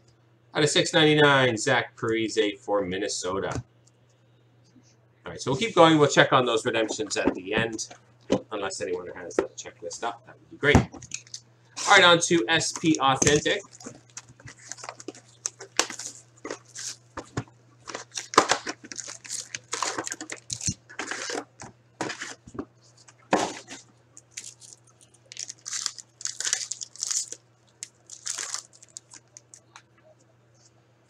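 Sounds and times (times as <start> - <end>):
low electrical hum: 0.0 - 31.0
plastic wrap crinkling and tearing: 13.5 - 17.2, 17.8 - 22.4, 23.5 - 29.8.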